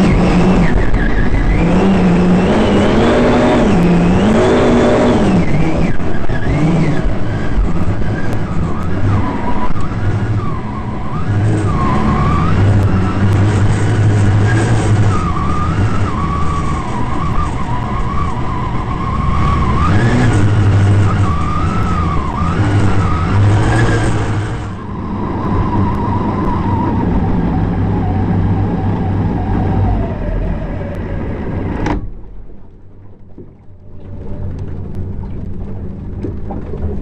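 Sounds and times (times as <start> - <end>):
race boat engine running hard: 0.0 - 32.1
quiet rumble: 20.5 - 37.0.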